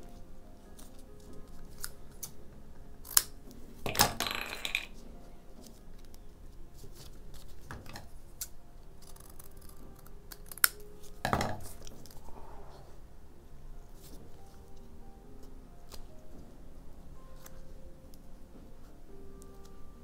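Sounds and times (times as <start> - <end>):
scissors snipping paper: 8.4 - 10.9.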